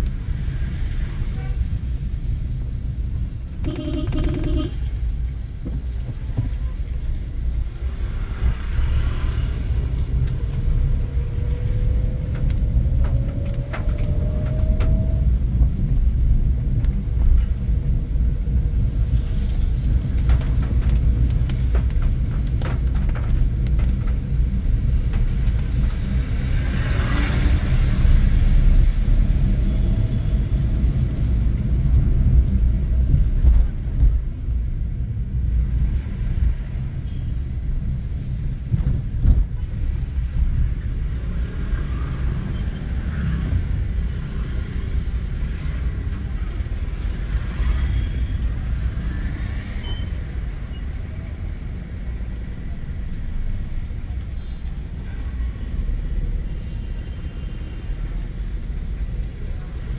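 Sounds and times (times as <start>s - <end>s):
road noise: 0.0s - 59.9s
car engine rumble: 1.7s - 27.0s.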